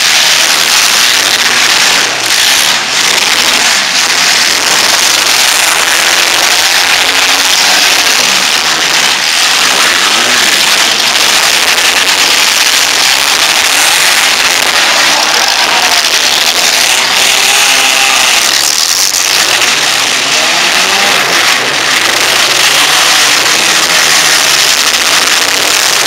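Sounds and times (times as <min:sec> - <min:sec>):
car engines revving: 0:00.0 - 0:26.0.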